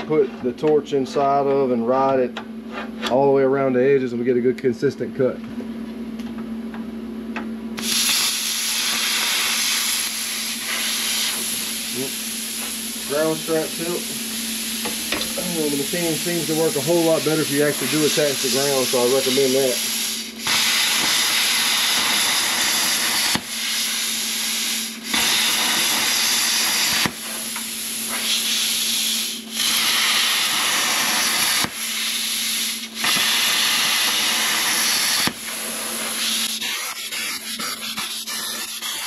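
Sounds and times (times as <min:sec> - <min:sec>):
plasma cutter hissing: 0:07.8 - 0:39.0.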